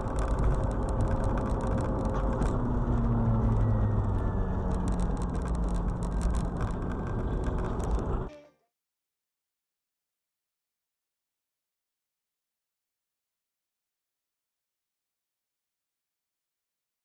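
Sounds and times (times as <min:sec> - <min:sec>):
light ticks and rattles: 0:00.0 - 0:08.3
road and engine noise: 0:00.0 - 0:08.3.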